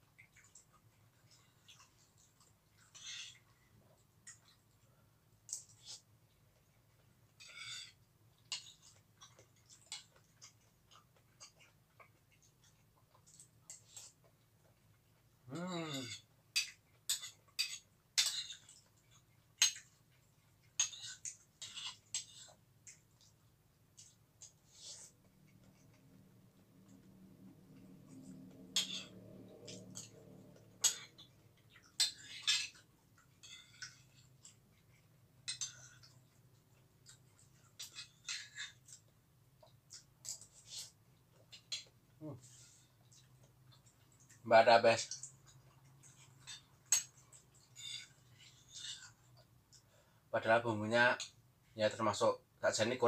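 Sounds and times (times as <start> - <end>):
chewing: 0.0 - 50.2
metal spoon scraping ceramic bowl: 28.6 - 31.3.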